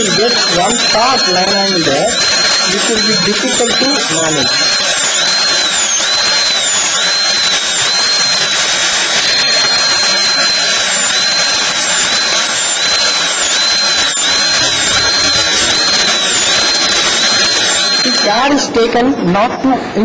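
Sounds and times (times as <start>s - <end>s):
dental drill whining: 0.0s - 18.7s.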